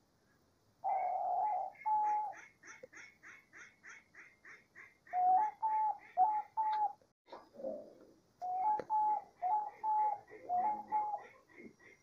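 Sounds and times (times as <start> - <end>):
dove cooing: 0.8 - 2.4, 5.1 - 12.0
higher pulsing bird call: 8.4 - 11.2.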